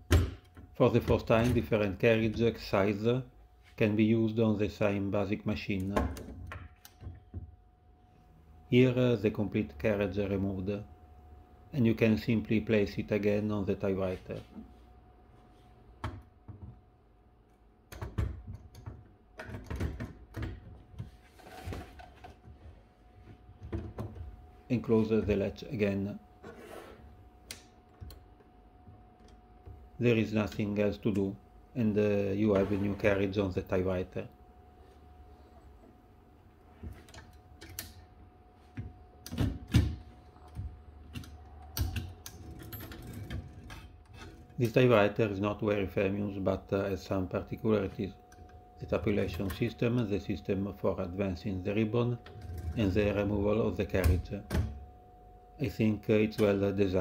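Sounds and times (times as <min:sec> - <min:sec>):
carriage scraping slide: 0:26.4 - 0:27.1.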